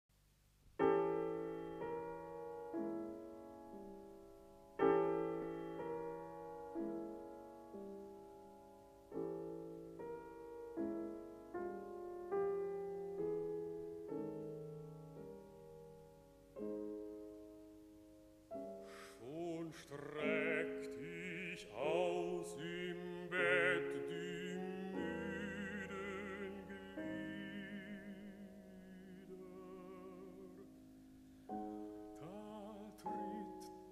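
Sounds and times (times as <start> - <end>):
piano chords: 0.8 - 33.9
baritone voice singing: 19.0 - 30.6, 32.2 - 33.9.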